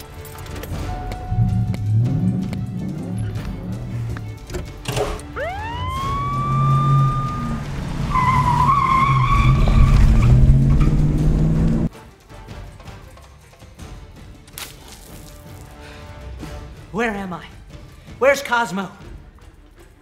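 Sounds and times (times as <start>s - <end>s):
background music: 0.0s - 20.0s
siren-like whine: 5.2s - 11.8s
wavering high squeal: 5.4s - 10.4s
deep car rumble: 5.8s - 11.9s.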